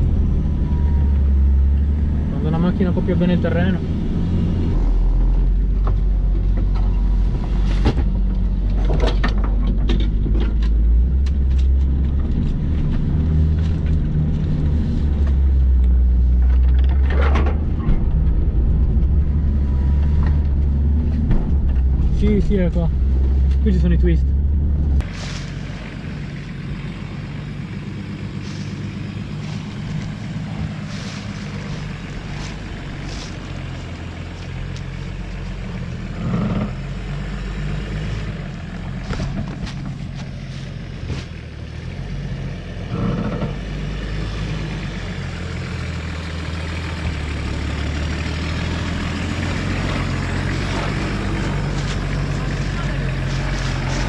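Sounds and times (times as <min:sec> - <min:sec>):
off-road vehicle engine low revs: 0:00.0 - 0:54.0
knocks and rattles: 0:05.8 - 0:14.2, 0:16.3 - 0:23.5.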